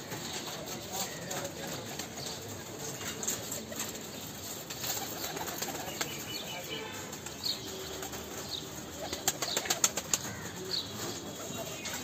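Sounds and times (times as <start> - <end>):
pigeon wings flapping: 4.6 - 6.4, 9.0 - 10.5.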